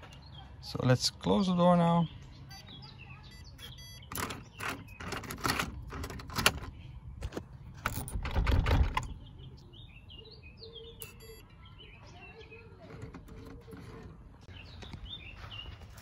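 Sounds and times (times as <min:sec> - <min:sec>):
birds chirping: 0:00.0 - 0:16.0
door handle and latch clicking: 0:04.1 - 0:09.2
door thudding shut: 0:08.1 - 0:09.1.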